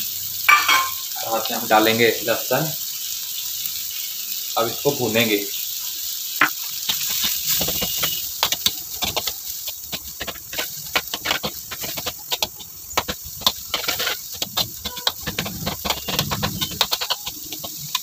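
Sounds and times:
food sizzling: 0.0s - 18.0s
metal ladle scraping metal pan: 0.5s - 1.1s, 6.9s - 18.0s.

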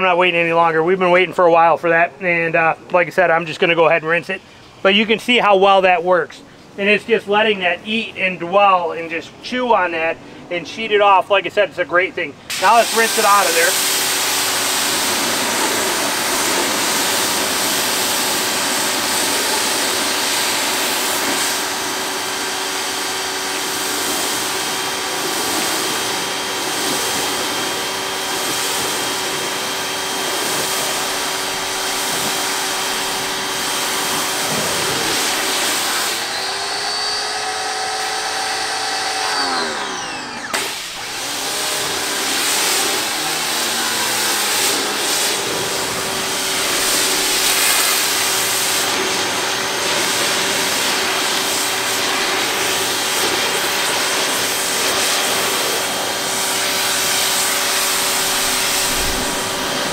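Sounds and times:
pressure washer motor hum: 12.2s - 59.9s
water spray hissing: 12.5s - 36.8s, 41.8s - 59.9s.

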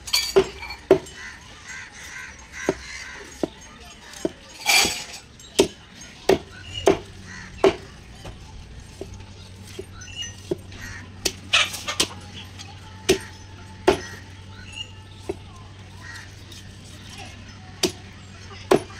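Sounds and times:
knife chopping fish on wood: 2.6s - 4.4s, 5.6s - 11.4s.

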